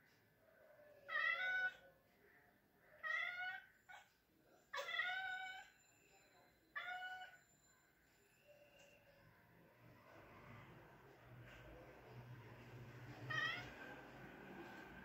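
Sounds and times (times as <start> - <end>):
cat meowing: 0.9 - 1.8, 3.0 - 4.1, 4.7 - 5.7, 6.8 - 7.4, 13.2 - 13.8.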